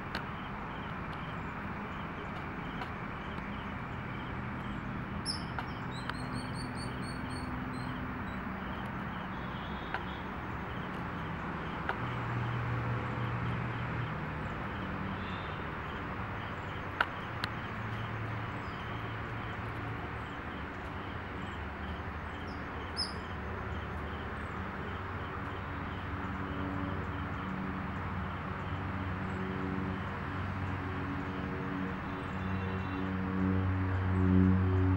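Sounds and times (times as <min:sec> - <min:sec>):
small birds chirping: 0:00.1 - 0:12.1, 0:15.2 - 0:25.6.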